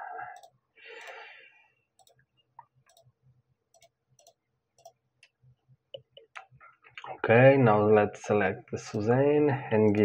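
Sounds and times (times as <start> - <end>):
computer mouse clicking: 0.4 - 1.2, 2.0 - 3.1, 3.7 - 5.4.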